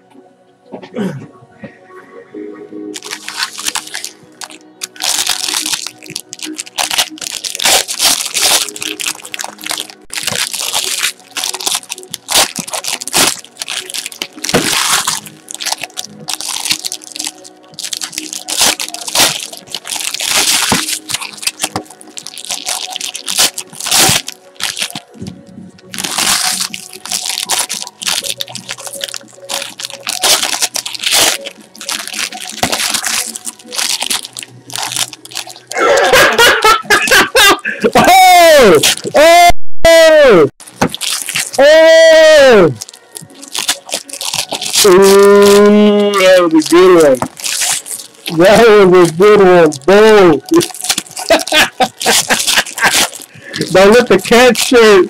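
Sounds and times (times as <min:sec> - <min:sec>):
quiet background music: 0:00.0 - 0:55.0
foil wrappers crinkling and tearing: 0:02.9 - 0:39.4, 0:40.6 - 0:55.0.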